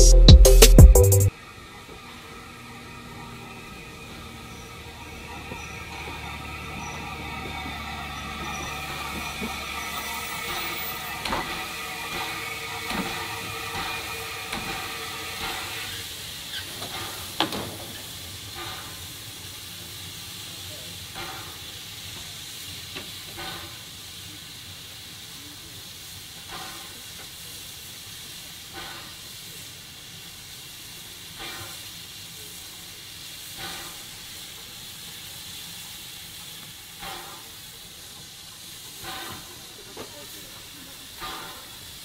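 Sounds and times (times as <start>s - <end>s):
short beat: 0.0s - 1.3s, 8.6s - 15.6s
steam locomotive hissing steam: 1.1s - 42.0s.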